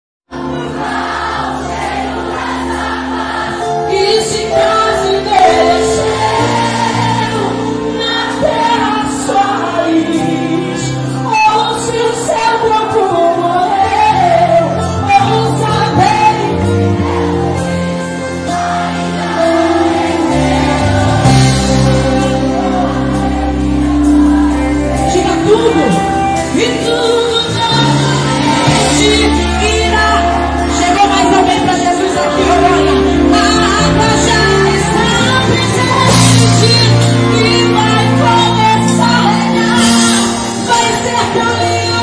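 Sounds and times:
band playing bass and chords: 0:00.3 - 0:42.0
woman singing into a microphone: 0:03.8 - 0:16.9, 0:24.5 - 0:42.0.

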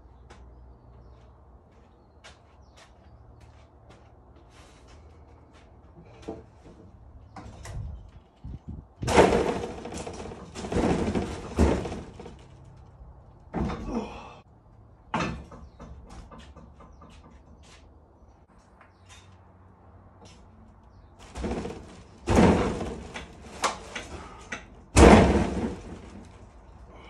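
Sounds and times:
wood scraping and knocking: 0:06.0 - 0:12.8, 0:21.2 - 0:24.4, 0:25.0 - 0:26.5.

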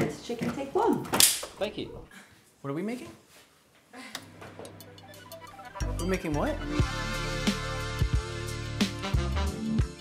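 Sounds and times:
instrumental music: 0:04.6 - 0:10.0.

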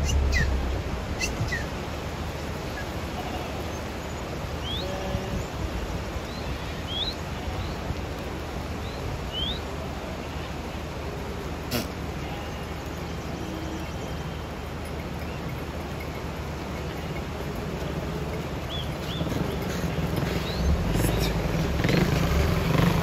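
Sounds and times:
bird chirps: 0:00.0 - 0:00.6, 0:01.2 - 0:01.7, 0:18.6 - 0:21.4
goat herd on paved road: 0:00.0 - 0:23.0.

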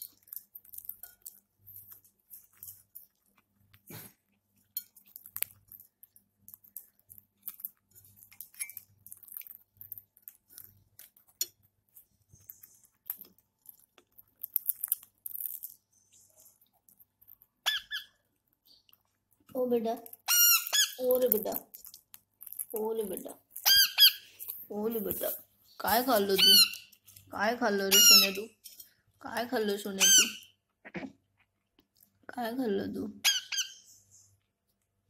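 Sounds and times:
beak clicks and crunches: 0:00.0 - 0:03.9, 0:04.8 - 0:24.6
parakeet squeaky call: 0:17.6 - 0:18.2, 0:20.2 - 0:21.1, 0:23.6 - 0:24.3, 0:26.3 - 0:26.9, 0:27.9 - 0:28.5, 0:30.0 - 0:30.5, 0:33.2 - 0:33.9.

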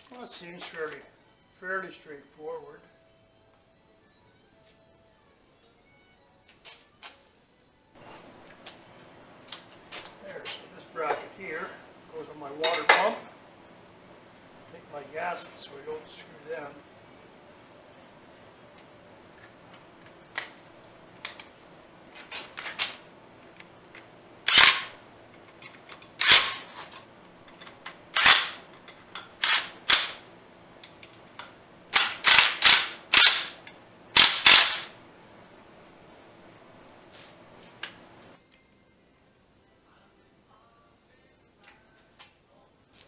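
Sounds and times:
metal parts clicking: 0:23.6 - 0:30.2, 0:30.8 - 0:34.9
impact driver bursts: 0:24.5 - 0:25.0, 0:26.2 - 0:26.7, 0:28.2 - 0:28.6, 0:29.4 - 0:30.2, 0:32.0 - 0:33.6, 0:34.2 - 0:34.9.

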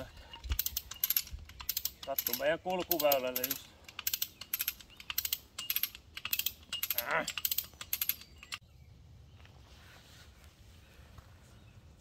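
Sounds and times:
ratchet pawl clicking: 0:00.5 - 0:08.6.

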